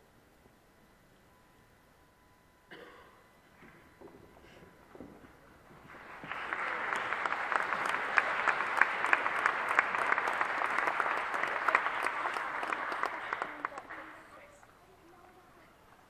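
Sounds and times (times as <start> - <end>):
congregation applauding: 5.7 - 15.5.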